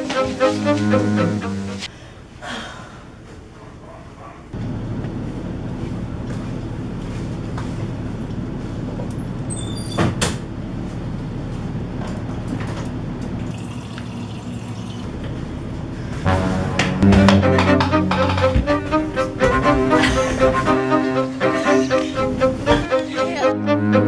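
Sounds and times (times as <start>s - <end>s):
low hum: 15.8s - 18.5s.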